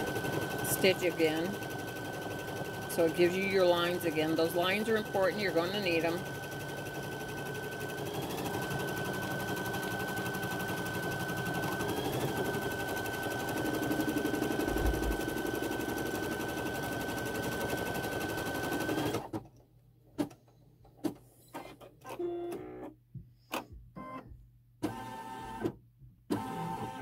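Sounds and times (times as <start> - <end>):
embroidery machine stitching: 0.0 - 19.4, 26.3 - 27.0.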